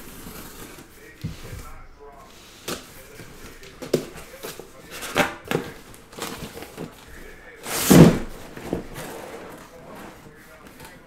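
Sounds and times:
cardboard box handling: 0.0 - 11.0
cardboard flap scrape and thud: 7.6 - 10.3.

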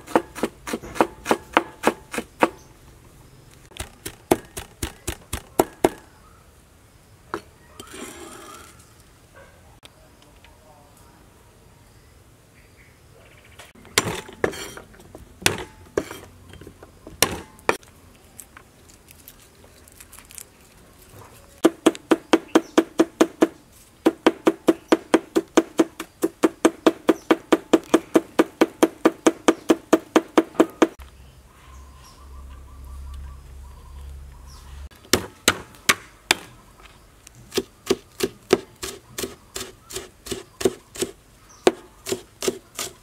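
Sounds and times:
knife chopping on cutting board: 0.0 - 2.6.

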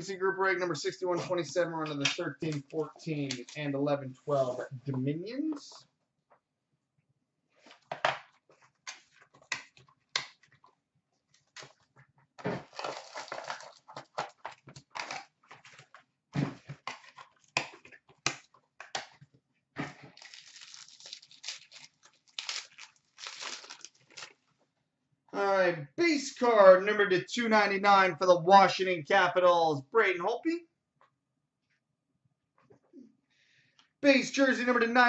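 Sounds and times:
packaging rustling and tearing: 12.5 - 16.0, 20.0 - 24.5.

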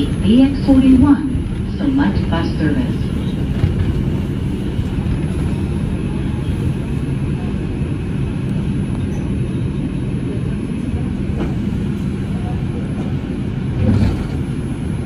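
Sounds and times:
subway car rumble: 0.0 - 15.0.

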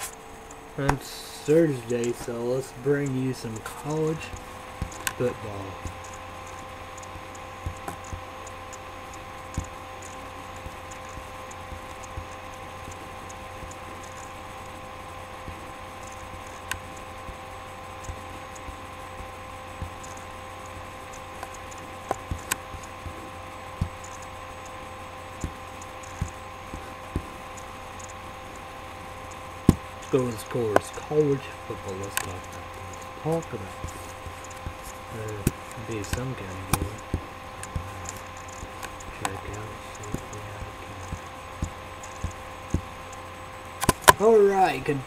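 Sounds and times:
steady electrical hum: 0.0 - 45.0
keyboard and mouse clicks: 5.8 - 14.8, 18.0 - 23.2, 23.8 - 24.8, 25.4 - 28.2, 32.0 - 42.9.

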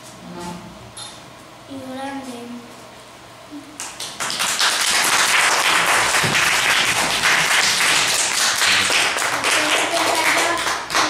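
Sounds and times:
children clapping: 3.8 - 11.0.

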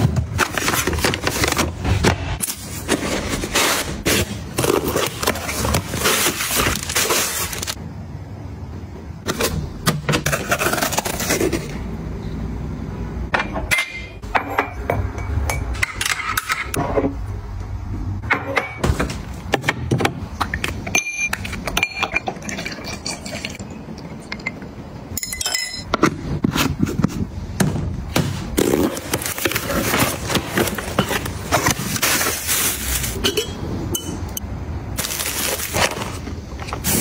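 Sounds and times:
containers and lids clinking: 28.9 - 34.4
packaging crackling: 35.0 - 36.9.

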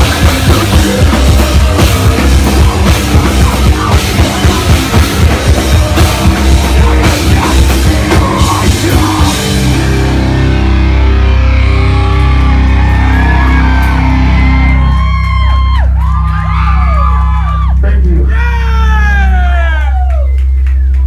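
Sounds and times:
pounding drums: 0.0 - 9.9
heavy rock band playing: 0.0 - 20.6
low guitar chord ringing: 9.4 - 15.0.

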